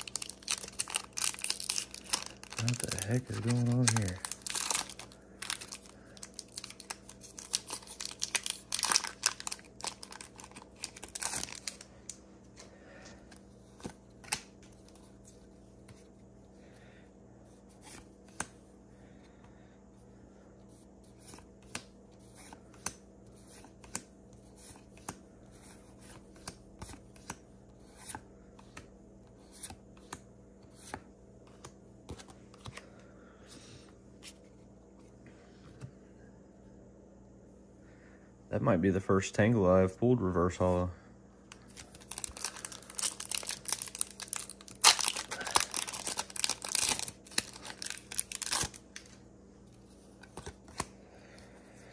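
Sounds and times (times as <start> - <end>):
foil wrapper crinkling and tearing: 0.0 - 11.9, 41.5 - 49.2.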